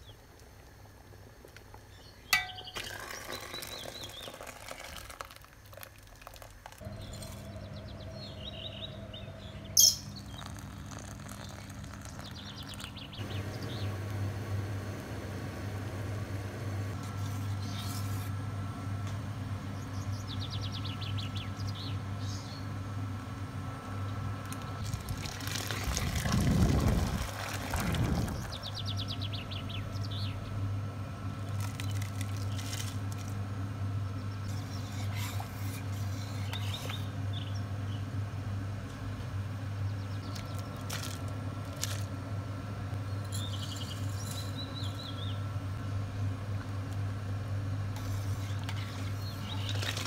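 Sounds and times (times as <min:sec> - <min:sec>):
birds chirping: 0:01.9 - 0:04.4, 0:06.8 - 0:17.9, 0:43.0 - 0:45.5, 0:48.4 - 0:50.0
steady low hum: 0:05.7 - 0:50.0.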